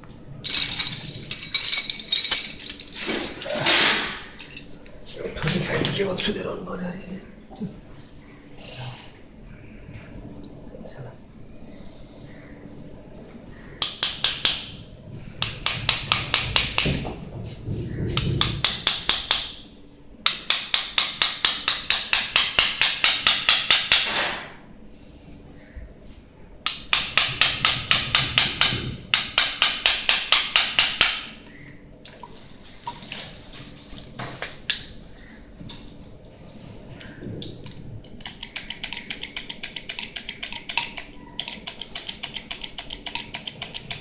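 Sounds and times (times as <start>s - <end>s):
rapid even clicking: 37.0s - 44.0s.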